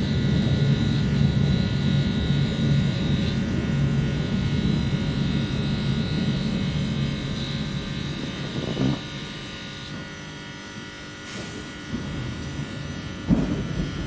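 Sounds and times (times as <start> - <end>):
train low rumble: 0.0 - 9.5, 11.6 - 14.0
faint high hum: 0.0 - 10.8.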